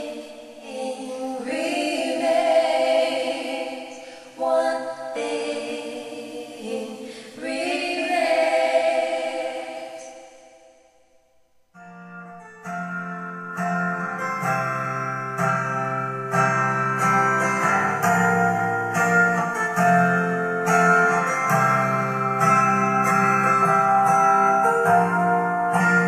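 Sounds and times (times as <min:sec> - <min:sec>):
guitar picking chords: 0:11.8 - 0:26.0.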